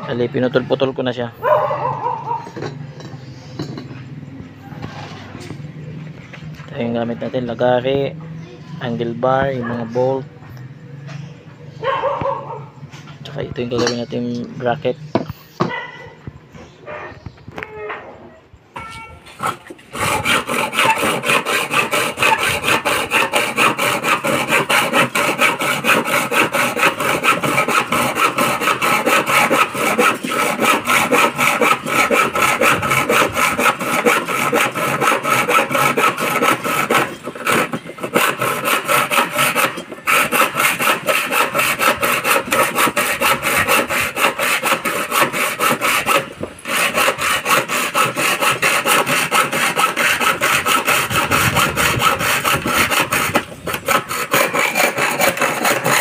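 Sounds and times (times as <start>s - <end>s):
hacksaw cutting metal: 2.3s - 4.0s, 13.7s - 14.5s, 18.8s - 56.0s.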